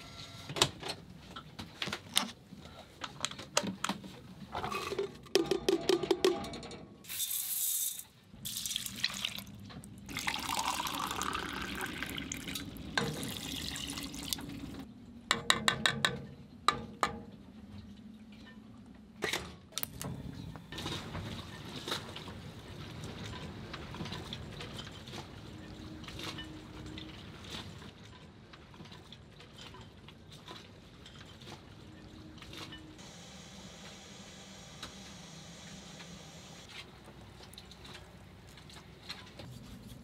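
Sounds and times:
liquid pouring: 0:08.5 - 0:14.8.

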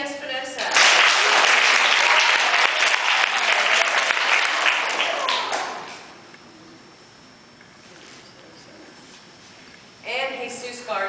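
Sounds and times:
audience applauding: 0:00.7 - 0:06.1.

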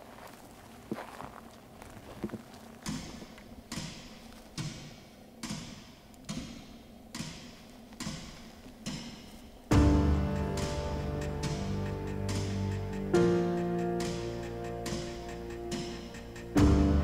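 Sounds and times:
footsteps through dry grass: 0:00.0 - 0:04.7
music: 0:03.9 - 0:17.0.

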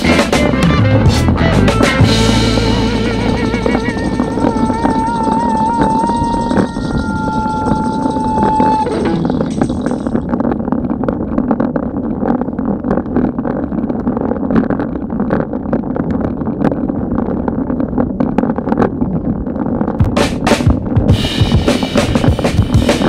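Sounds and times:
wind buffeting: 0:00.0 - 0:23.0.

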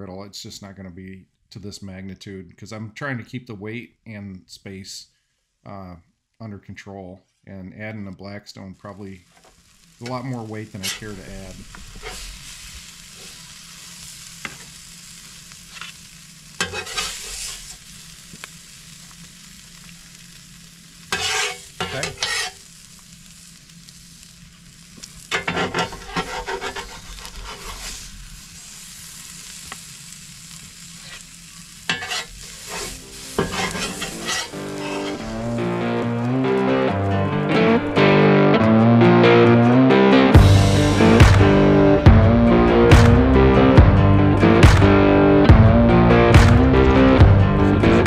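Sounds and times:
food sizzling on a griddle: 0:08.8 - 0:36.9, 0:40.4 - 0:42.0
scraping and stirring on griddle: 0:09.3 - 0:35.8.

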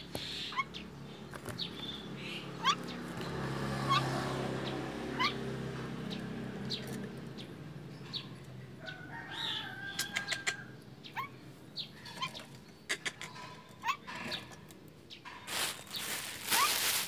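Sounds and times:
bird alarm calls: 0:00.0 - 0:03.2, 0:03.8 - 0:05.5, 0:09.3 - 0:16.8.

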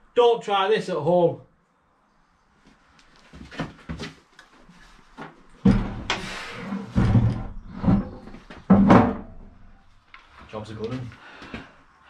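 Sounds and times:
heavy metal knocks and clunks: 0:05.6 - 0:06.2, 0:06.9 - 0:09.7.

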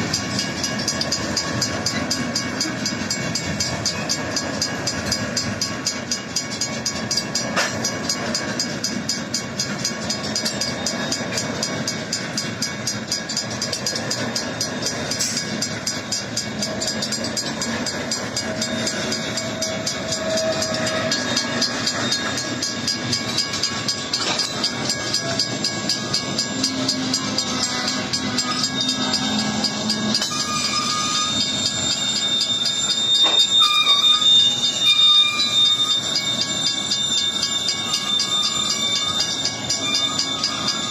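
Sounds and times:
crossing bells ringing: 0:00.0 - 0:40.9
freight train rumbling: 0:00.0 - 0:40.9
high wheel squeals: 0:12.4 - 0:40.9.

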